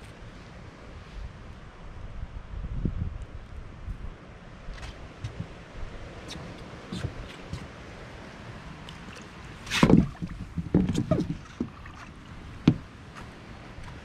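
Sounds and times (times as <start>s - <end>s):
light wind noise: 0.0s - 14.0s
footsteps on fibreglass deck: 4.7s - 5.6s, 12.6s - 14.0s
knocks on boat deck: 9.8s - 11.7s, 12.6s - 12.9s.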